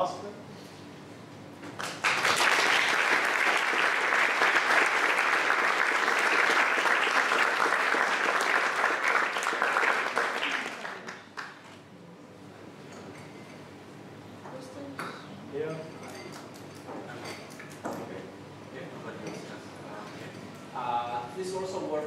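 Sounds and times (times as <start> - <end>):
audience applauding: 1.8 - 11.7.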